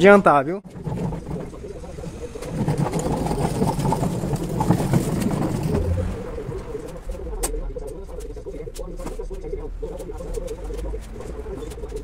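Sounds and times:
steel tank scraping across concrete: 0.6 - 7.2.

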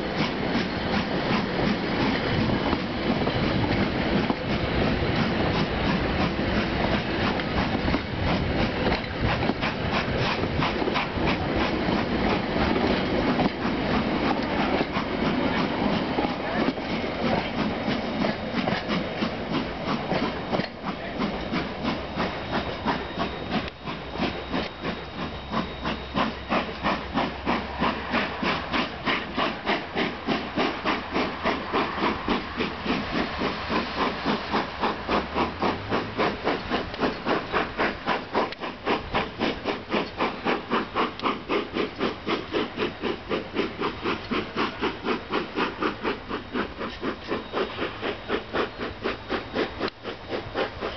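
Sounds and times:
steam hissing: 0.0 - 50.9
steam locomotive chuffing: 0.0 - 50.9.

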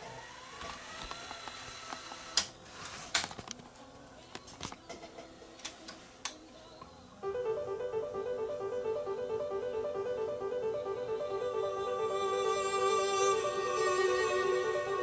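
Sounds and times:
music playback: 7.2 - 15.0
tape motor whine: 7.2 - 15.0.

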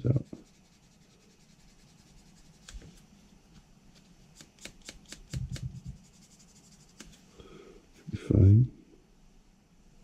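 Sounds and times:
sanding sponge scratching plastic: 0.0 - 2.9, 4.4 - 7.2.

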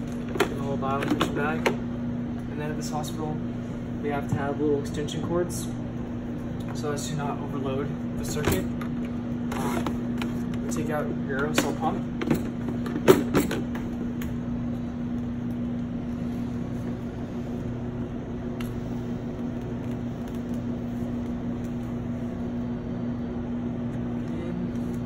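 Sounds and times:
low electrical hum: 0.0 - 25.0.

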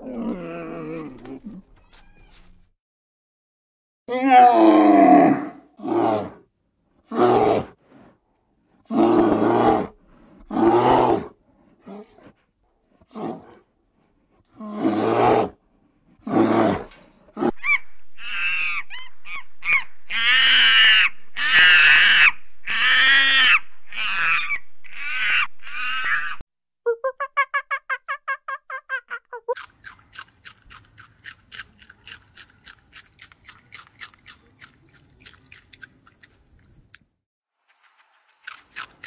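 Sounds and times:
higher pitched animal calls: 17.5 - 26.4.

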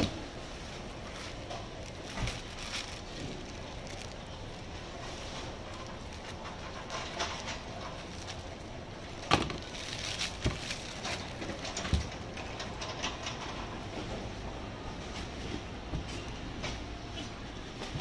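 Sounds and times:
plastic bag crinkling: 0.0 - 12.9.

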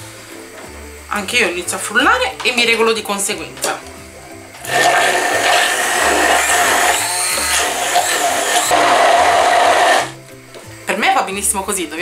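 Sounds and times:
immersion blender running: 4.6 - 10.2.

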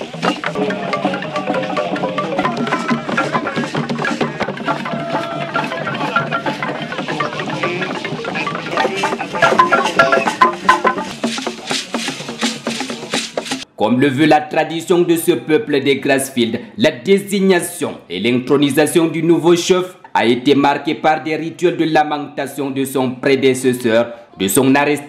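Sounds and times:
wooden xylophone played with mallets: 0.0 - 13.6
drums: 0.0 - 13.7.

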